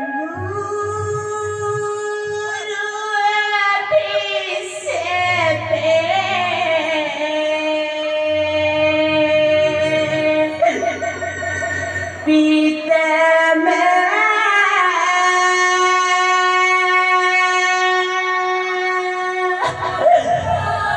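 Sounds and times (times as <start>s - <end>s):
person singing a slow lament: 0.0s - 20.9s
low instrumental accompaniment: 4.8s - 12.8s.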